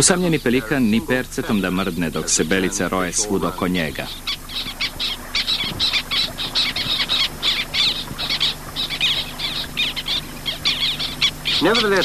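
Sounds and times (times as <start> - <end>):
terns calling: 0.0 - 12.0.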